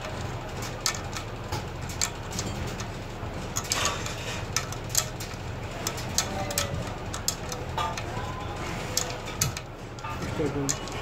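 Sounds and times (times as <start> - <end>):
steady low hum: 0.0 - 11.0
spanner clinking on a bolt: 3.5 - 8.3, 8.9 - 11.0.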